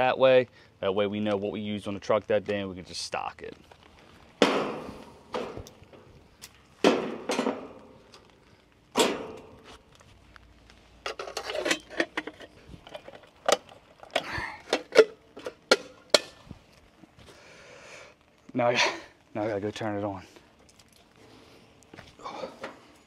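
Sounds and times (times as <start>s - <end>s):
tools clattering: 6.9s - 7.8s, 11.0s - 16.4s.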